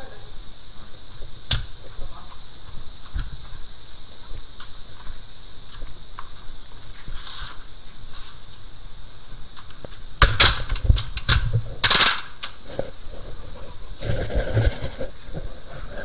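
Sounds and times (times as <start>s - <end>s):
steady hiss: 0.0s - 16.0s
clothing rubbing on microphone: 1.2s - 8.7s, 12.6s - 16.0s.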